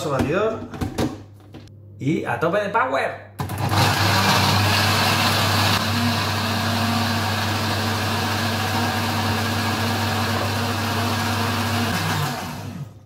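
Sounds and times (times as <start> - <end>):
blender running: 3.4 - 13.0.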